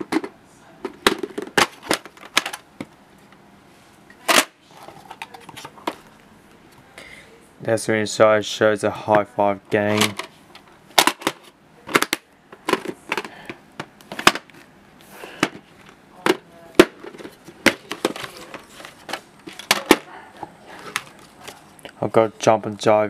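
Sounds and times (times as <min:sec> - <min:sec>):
plastic cases clicking and snapping: 0:09.9 - 0:14.7, 0:15.4 - 0:20.1.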